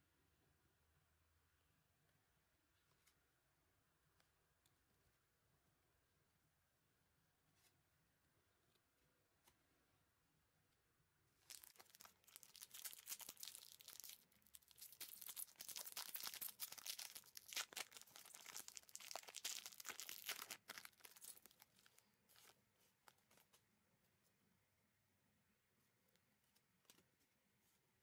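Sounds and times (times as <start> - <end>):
foil pack crinkling: 11.4 - 23.4.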